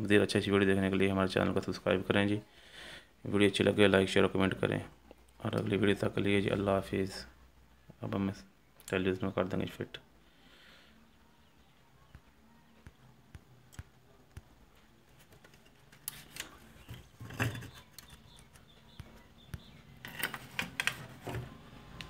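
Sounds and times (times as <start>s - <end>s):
clicks and knocks of handling: 15.2s - 21.5s.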